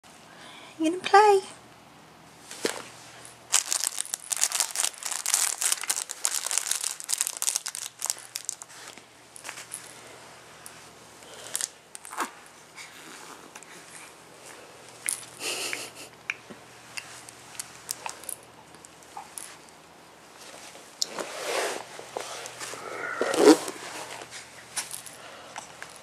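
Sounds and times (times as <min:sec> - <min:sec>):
crinkle fabric crackling: 0:03.5 - 0:09.7.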